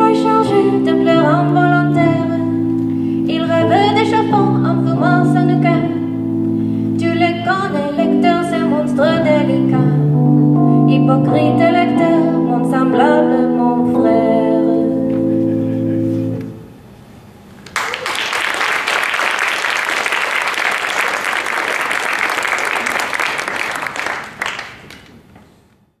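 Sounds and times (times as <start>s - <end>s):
person singing: 0.0s - 2.6s, 3.2s - 6.2s, 6.9s - 16.6s
keyboard chord: 0.0s - 16.8s
audience applause: 17.6s - 25.3s.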